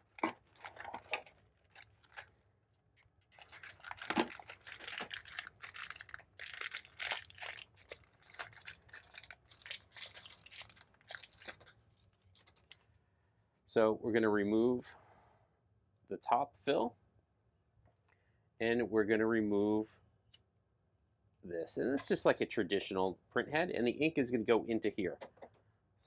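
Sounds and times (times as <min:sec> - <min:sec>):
packaging crinkling and tearing: 0:00.0 - 0:02.4, 0:03.2 - 0:12.9.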